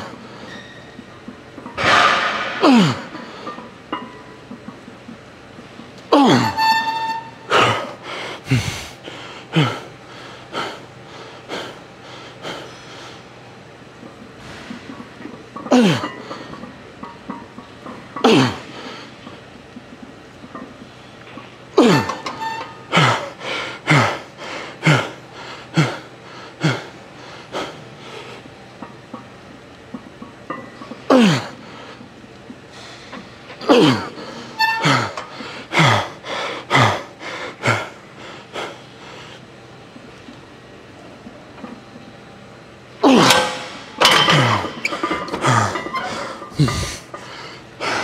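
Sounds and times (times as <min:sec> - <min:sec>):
man gasping for breath: 0:08.0 - 0:11.6
man exhaling hard: 0:08.5 - 0:09.0.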